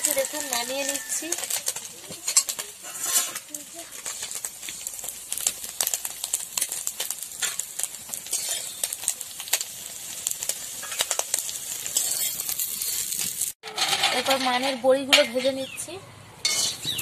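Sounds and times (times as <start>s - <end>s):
metal spatula scraping a pan: 0.0s - 4.8s, 7.4s - 9.1s, 10.7s - 15.6s, 16.4s - 17.0s
fish sizzling in oil: 0.0s - 13.6s.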